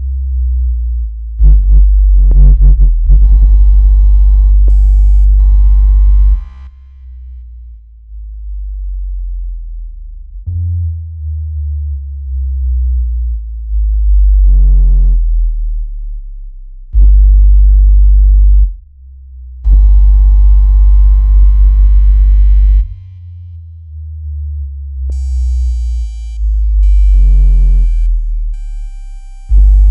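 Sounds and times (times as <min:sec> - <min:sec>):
deep synthesized bass tones: 0:00.0 - 0:29.9
loud deep buzzy tone: 0:00.0 - 0:29.9.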